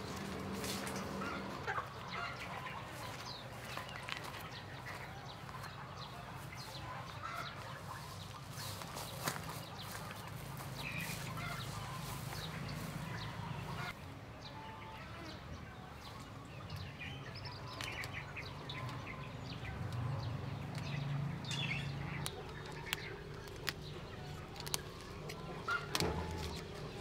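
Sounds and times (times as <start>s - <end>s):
chickens clucking: 0.0s - 14.0s, 16.1s - 27.0s
small birds chirping: 0.0s - 27.0s.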